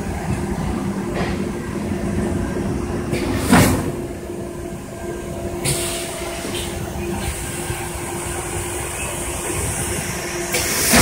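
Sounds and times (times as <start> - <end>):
air hiss: 5.6 - 11.0.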